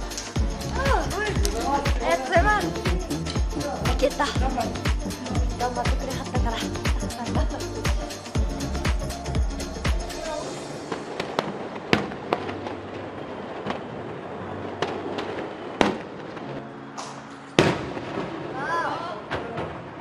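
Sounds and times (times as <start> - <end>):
fireworks bangs and crackles: 9.9 - 20.0.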